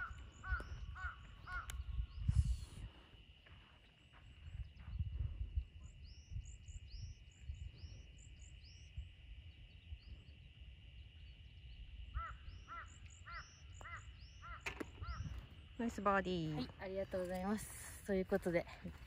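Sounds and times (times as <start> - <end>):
crow cawing: 0.0 - 1.8, 12.1 - 15.4
small birds chirping: 0.0 - 19.0
wind rumble on microphone: 0.0 - 19.0.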